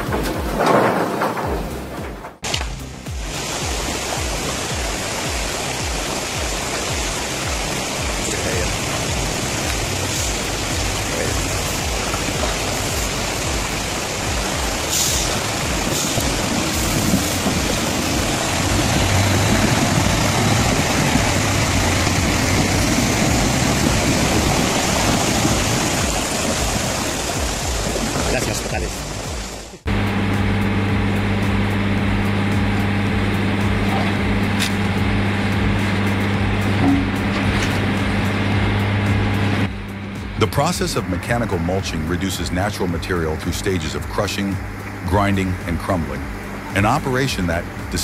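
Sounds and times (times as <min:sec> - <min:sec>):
background music with steady beat: 0:01.5 - 0:17.5, 0:28.8 - 0:48.0
truck diesel engine running: 0:02.8 - 0:48.0
river water rushing: 0:03.1 - 0:29.8.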